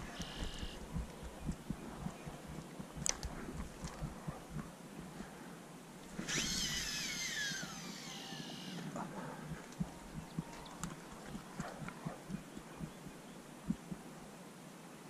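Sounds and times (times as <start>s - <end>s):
fishing reel spool whirring: 6.2s - 8.8s.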